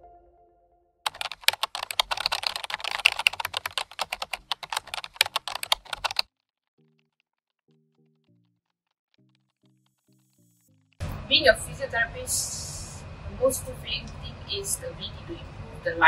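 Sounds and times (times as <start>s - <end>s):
keyboard key clicks: 1.1s - 6.2s.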